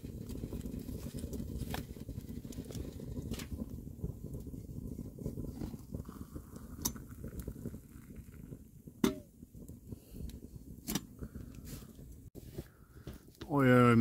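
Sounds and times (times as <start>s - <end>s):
hot water pouring into cup: 0.0s - 9.0s
wood stove crackling: 0.0s - 14.0s.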